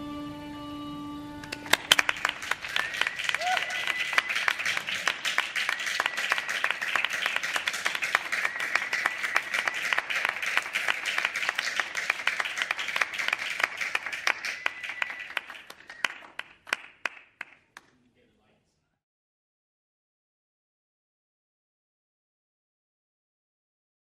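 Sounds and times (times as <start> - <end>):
audience applauding: 1.4 - 17.9.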